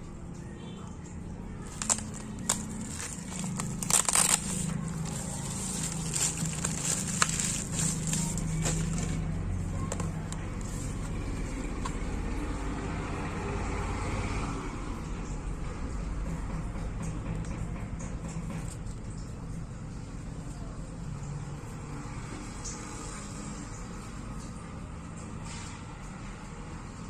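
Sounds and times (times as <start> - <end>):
low background hum: 0.0 - 13.4
bubble wrap crinkling: 1.6 - 12.1.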